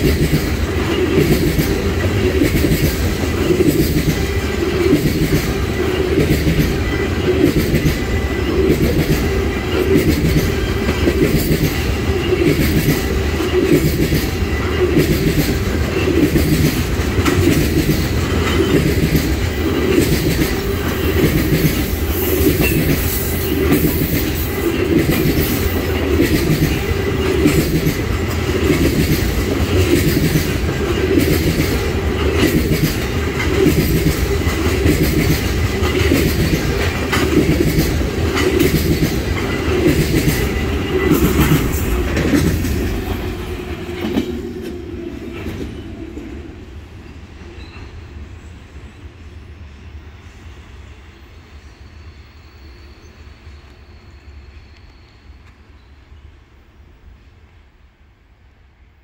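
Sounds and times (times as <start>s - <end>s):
train wheels clacking over rail joints: 0.0s - 46.4s
heavy train rumble: 0.0s - 59.0s.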